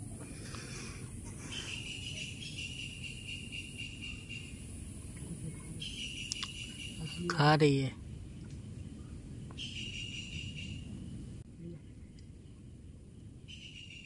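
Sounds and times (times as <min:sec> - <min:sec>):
faint high insect hiss: 0:00.0 - 0:14.0
insect trilling: 0:00.5 - 0:07.3.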